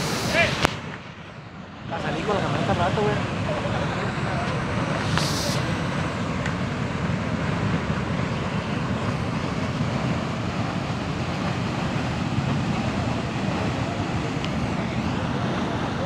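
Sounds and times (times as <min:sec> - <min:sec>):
geyser erupting: 0:00.0 - 0:16.0.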